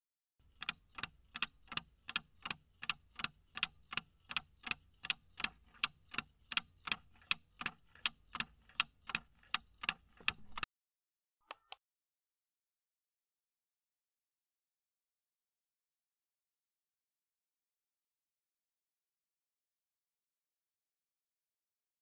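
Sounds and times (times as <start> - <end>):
clock ticking: 0.4 - 10.7.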